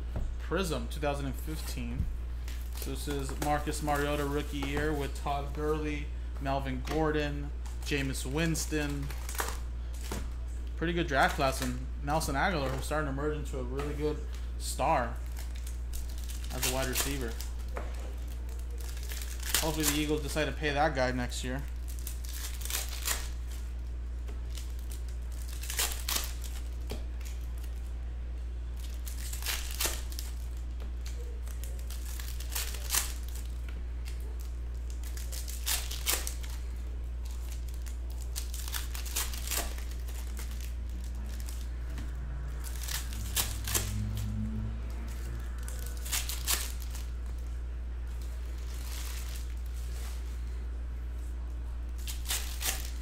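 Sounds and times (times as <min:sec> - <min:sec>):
card packs crinkling and tearing: 0:01.1 - 0:06.0, 0:06.6 - 0:27.9, 0:28.7 - 0:50.6, 0:51.8 - 0:53.0
low hum: 0:21.7 - 0:53.0.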